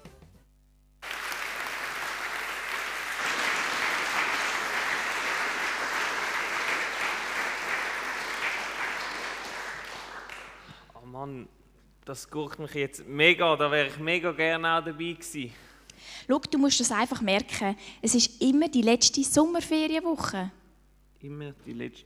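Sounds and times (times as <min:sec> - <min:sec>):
crowd applauding: 0:01.0 - 0:10.9.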